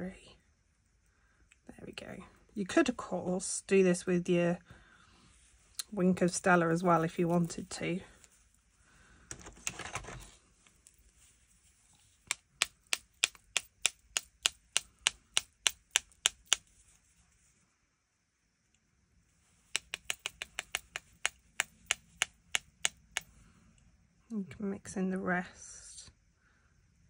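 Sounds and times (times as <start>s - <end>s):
brush tapping on plastic: 12.2s - 16.9s, 19.6s - 23.3s.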